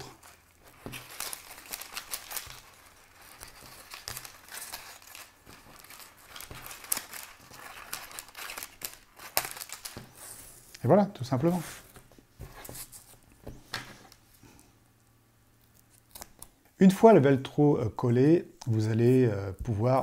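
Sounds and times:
hook-and-loop tape crinkling: 0:00.0 - 0:11.6.

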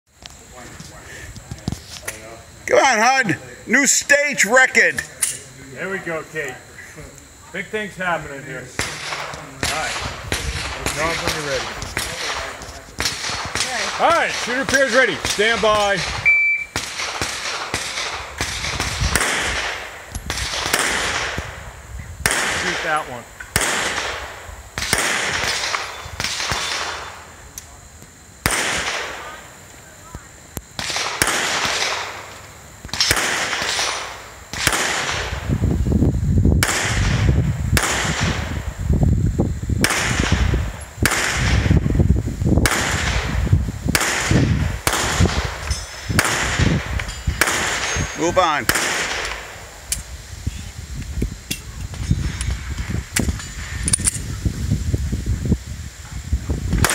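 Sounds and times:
pistol shots: 0:08.8 - 0:21.5, 0:22.2 - 0:27.2, 0:28.4 - 0:29.3, 0:30.8 - 0:32.3, 0:32.9 - 0:35.4, 0:36.6 - 0:38.4, 0:39.8 - 0:41.6, 0:42.6 - 0:43.3, 0:43.9 - 0:49.6
shot timer beep: 0:16.2 - 0:16.8.

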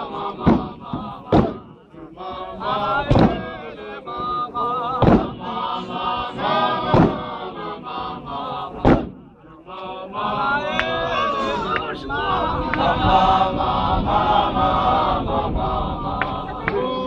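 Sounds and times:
men chanting a hymn: 0:00.0 - 0:17.0
feet stomping on dirt: 0:05.0 - 0:05.3, 0:08.8 - 0:09.2.

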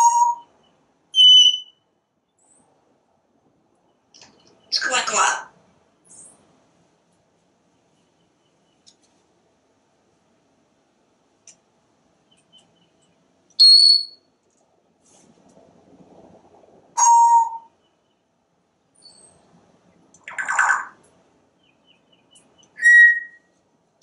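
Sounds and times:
parrot whistles: 0:00.0 - 0:00.5, 0:01.2 - 0:01.8, 0:13.6 - 0:14.2, 0:17.0 - 0:17.7, 0:22.8 - 0:23.5
parrot squawk: 0:20.3 - 0:21.0.

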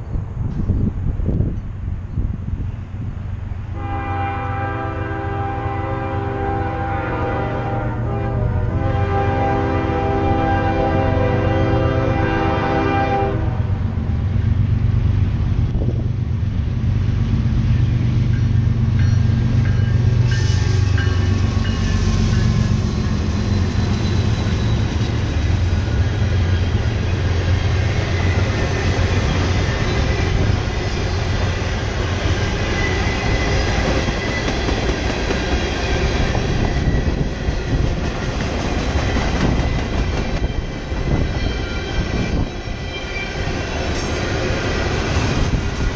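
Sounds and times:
locomotive engines rumbling: 0:00.0 - 0:45.9
train horn: 0:03.7 - 0:13.8
freight cars rolling on rails: 0:14.0 - 0:45.9.

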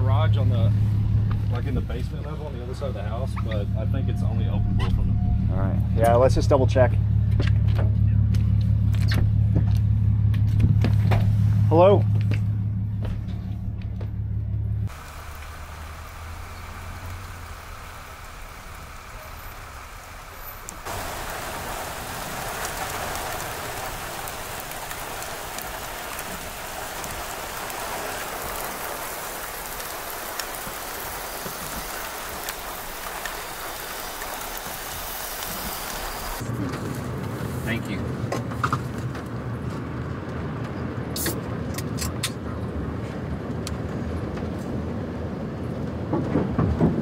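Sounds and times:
vehicle engine idling: 0:00.0 - 0:38.3
steady rain falling: 0:14.9 - 0:37.9.

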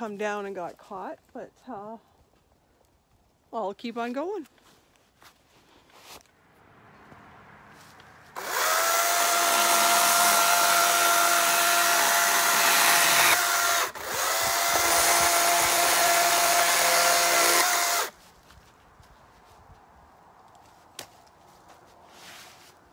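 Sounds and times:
electric chainsaw cutting wood: 0:08.3 - 0:18.1.

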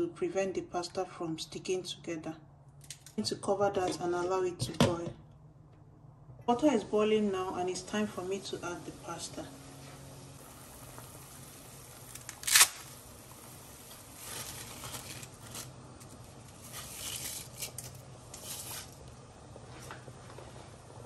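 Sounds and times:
spaghetti cracking: 0:11.9 - 0:19.1
dry spaghetti rustling and crackling: 0:11.9 - 0:20.7.

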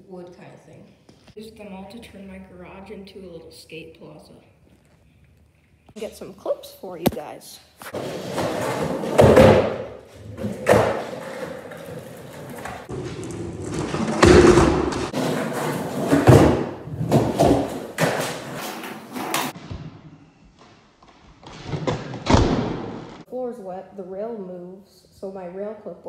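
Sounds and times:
skateboard wheels rolling on concrete: 0:07.8 - 0:19.6
skateboard thumps and slaps: 0:08.5 - 0:11.6, 0:12.4 - 0:19.5.

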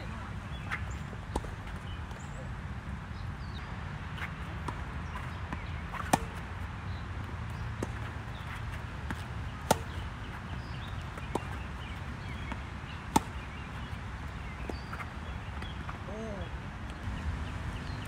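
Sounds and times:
tennis ball struck by racket: 0:04.2 - 0:06.5, 0:07.8 - 0:15.9.

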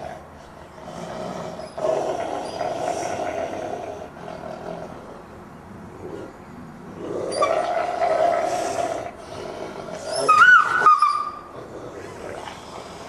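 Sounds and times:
wolf growling: 0:00.0 - 0:13.0
wolf screaming: 0:07.2 - 0:09.1, 0:09.9 - 0:11.6.

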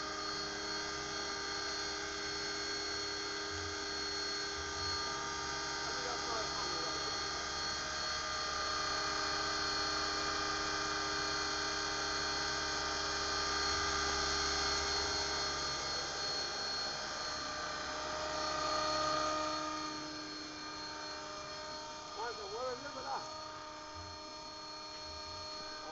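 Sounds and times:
model helicopter rotor whine: 0:00.0 - 0:25.9.

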